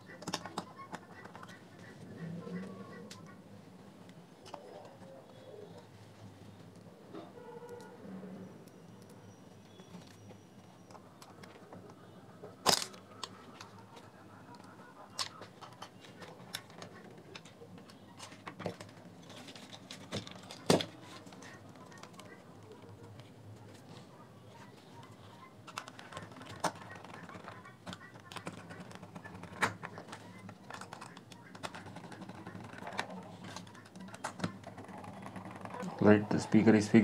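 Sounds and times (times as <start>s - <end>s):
plastic parts clicking and knocking: 0.0s - 1.6s, 12.6s - 22.4s, 25.6s - 36.0s.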